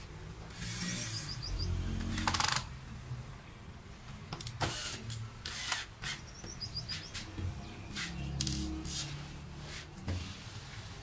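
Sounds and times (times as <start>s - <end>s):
faint bird chirps: 1.0s - 1.8s
cordless drill driving into wood: 4.6s - 6.2s.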